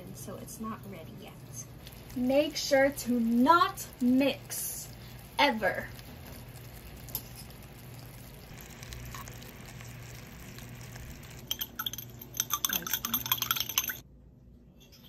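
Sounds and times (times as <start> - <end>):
low hum: 0.0 - 15.0
syrup bubbling in a pan: 1.8 - 14.0
chopstick clinking among ice cubes: 11.5 - 14.0.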